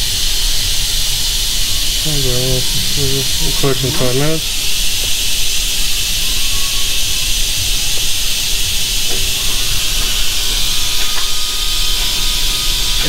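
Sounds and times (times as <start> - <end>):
vacuum bleeder hissing: 0.0 - 13.0
low rumble: 1.9 - 5.7.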